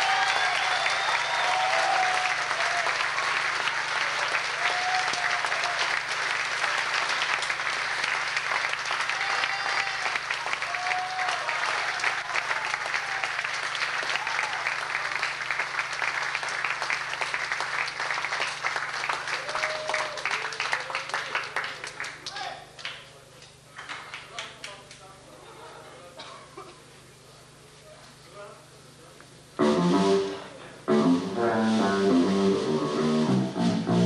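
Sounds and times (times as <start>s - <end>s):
audience applauding: 0.0s - 23.1s.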